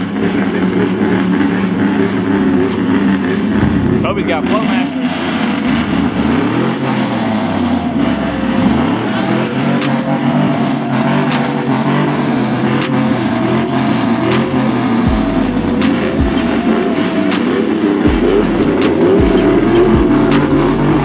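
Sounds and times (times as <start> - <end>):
truck engines revving: 0.0 - 21.0
deep low rumble: 3.4 - 6.6.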